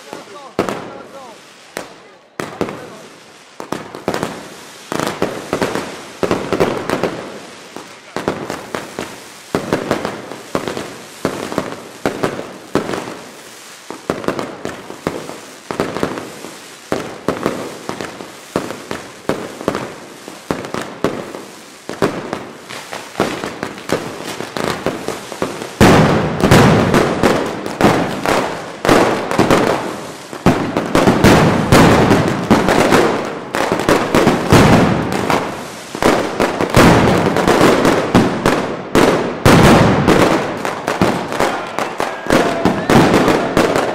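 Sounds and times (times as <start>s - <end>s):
firecrackers banging rapidly: 0.0s - 43.9s.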